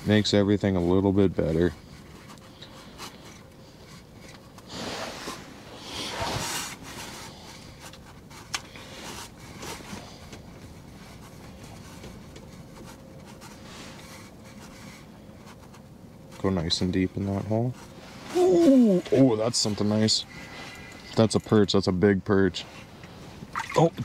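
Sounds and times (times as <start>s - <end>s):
rustling and handling noise: 0.0s - 24.0s.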